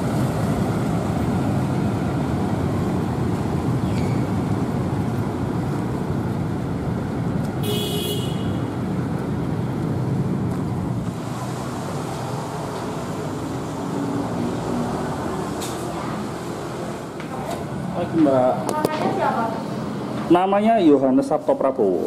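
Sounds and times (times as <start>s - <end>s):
city road traffic: 0.0s - 22.0s
vehicle horn toot: 7.6s - 8.7s.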